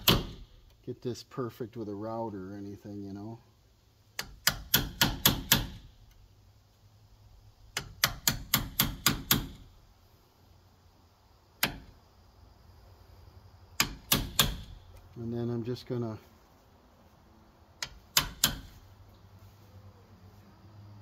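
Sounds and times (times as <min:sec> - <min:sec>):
hammer striking wood chisel: 0:00.0 - 0:00.5, 0:04.2 - 0:05.8, 0:07.8 - 0:09.6, 0:13.8 - 0:14.8, 0:17.8 - 0:18.8.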